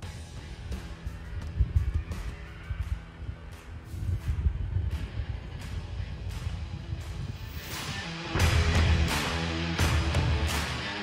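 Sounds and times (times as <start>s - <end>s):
wind buffeting microphone: 1.1s - 7.6s.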